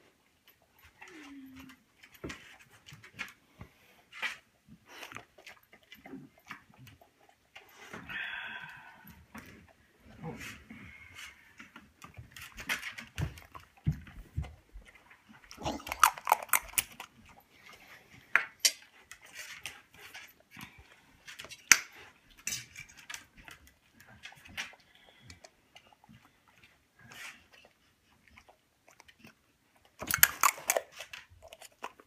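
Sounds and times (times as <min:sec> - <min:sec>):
dogs snapping and mouth noises: 0:15.5 - 0:17.2, 0:28.9 - 0:32.0
metal spoon clicking on teeth: 0:30.0 - 0:31.0.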